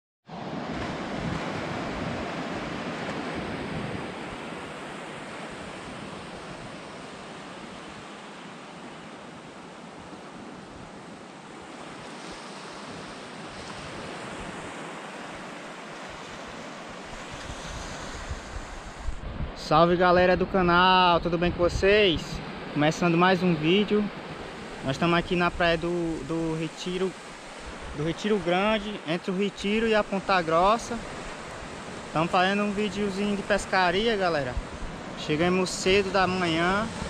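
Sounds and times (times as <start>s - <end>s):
surf washing on beach: 0.3s - 37.0s
wind buffeting microphone: 17.2s - 19.6s, 34.4s - 35.2s.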